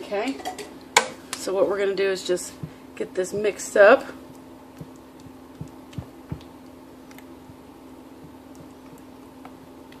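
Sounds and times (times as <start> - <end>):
steady low hum: 0.0 - 10.0
spatula stirring gooey mixture: 2.7 - 10.0.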